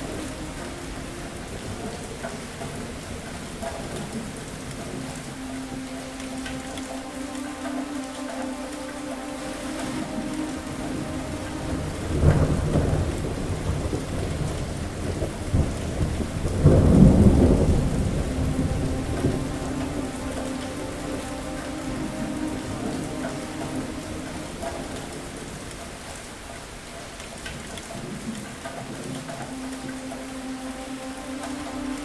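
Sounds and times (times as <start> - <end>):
steady rain falling: 0.0 - 32.0
low thunder rumble: 10.8 - 21.3.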